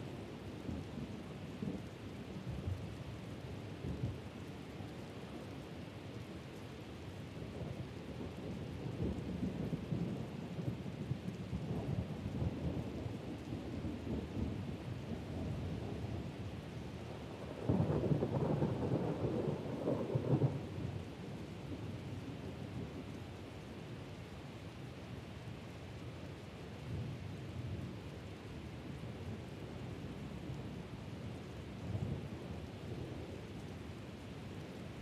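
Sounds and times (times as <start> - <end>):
steady rain: 0.0 - 35.0
thunder rumbling: 17.4 - 20.6.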